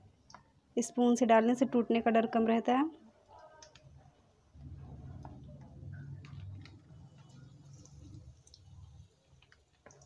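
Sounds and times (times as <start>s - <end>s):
low steady rumble: 4.6s - 8.5s
frying crackles and ticks: 5.2s - 10.0s.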